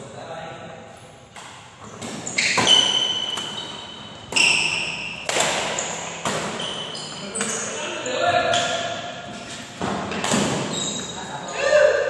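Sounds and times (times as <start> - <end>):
rackets hitting shuttlecock: 1.3 - 7.7, 9.8 - 10.7.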